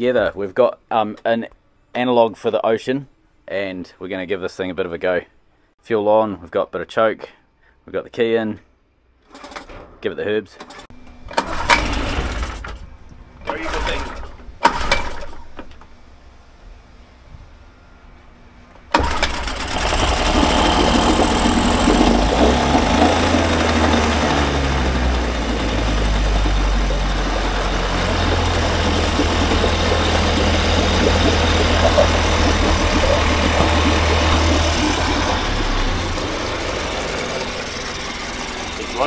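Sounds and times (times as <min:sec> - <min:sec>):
small outboard motor running: 0:11.2 - 0:15.4, 0:18.9 - 0:39.0.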